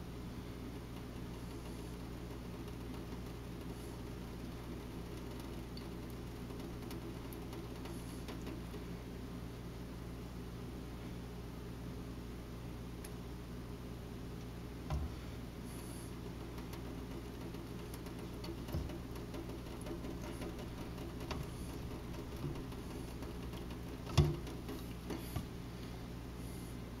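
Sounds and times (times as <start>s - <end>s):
plastic cylinder knocking: 16.4s - 25.5s.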